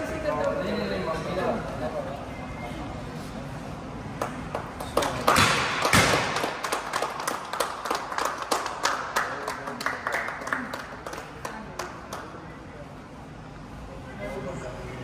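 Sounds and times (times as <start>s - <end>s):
people clapping: 4.1s - 12.7s
loud bangs: 5.3s - 6.7s.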